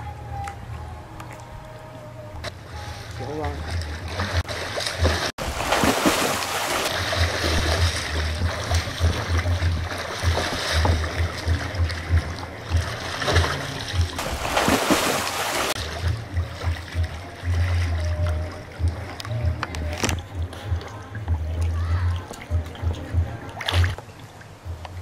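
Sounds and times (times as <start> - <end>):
swimmer splashing: 2.4 - 19.4.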